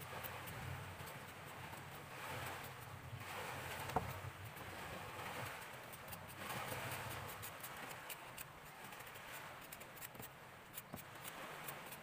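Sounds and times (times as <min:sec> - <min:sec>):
knife scraping ginger root: 0:04.4 - 0:12.0.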